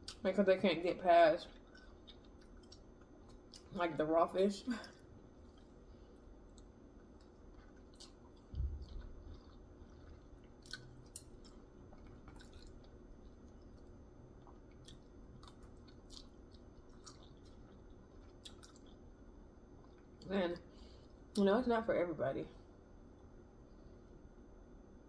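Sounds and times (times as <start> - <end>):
person chewing: 1.5 - 3.8, 4.9 - 19.1, 19.8 - 20.3.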